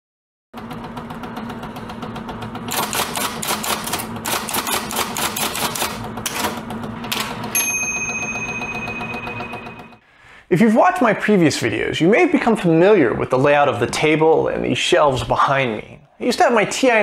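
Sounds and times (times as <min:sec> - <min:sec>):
typewriter keys clacking: 0:02.7 - 0:07.4
typewriter carriage-return bell: 0:02.7 - 0:10.0.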